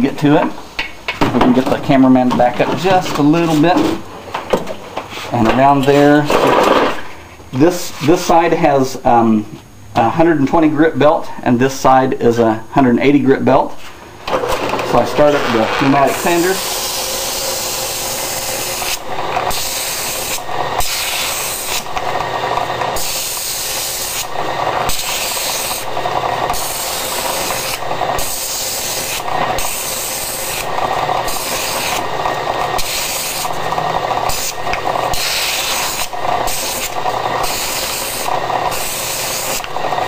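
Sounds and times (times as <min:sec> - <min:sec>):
machine hum: 0:13.8 - 0:40.0
drum sander rasping on wood: 0:14.3 - 0:40.0.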